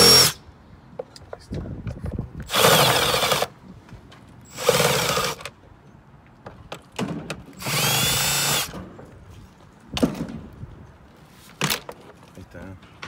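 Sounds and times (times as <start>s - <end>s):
cordless drill motor whine: 0.0s - 0.4s, 2.5s - 3.5s, 4.5s - 5.4s, 7.6s - 8.7s.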